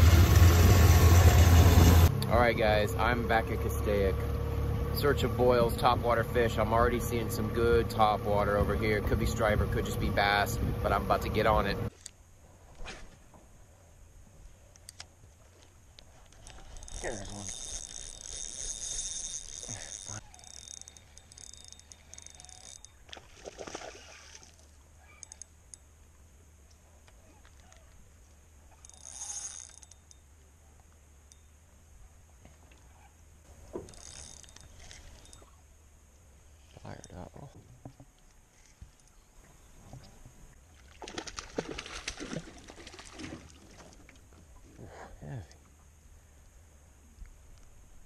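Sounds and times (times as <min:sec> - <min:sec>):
water splashing: 0:21.8 - 0:24.8, 0:39.5 - 0:44.7.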